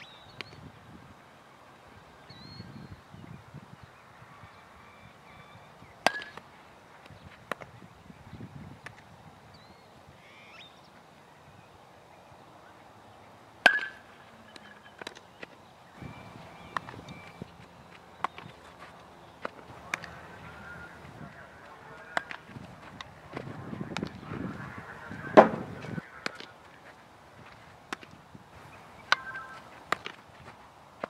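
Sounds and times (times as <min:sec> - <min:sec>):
bat cracking baseball: 0:06.1 - 0:06.4, 0:13.6 - 0:14.1, 0:19.4 - 0:20.7, 0:22.0 - 0:22.5, 0:25.3 - 0:26.5, 0:29.0 - 0:30.2
balls popping into gloves: 0:18.2 - 0:18.6, 0:25.3 - 0:26.5, 0:29.1 - 0:30.2.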